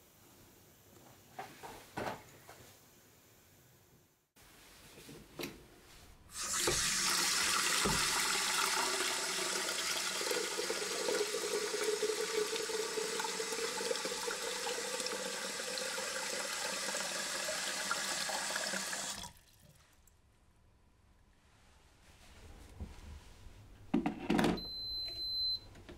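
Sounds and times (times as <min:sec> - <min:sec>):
tap water running into kettle: 0:06.3 - 0:19.8.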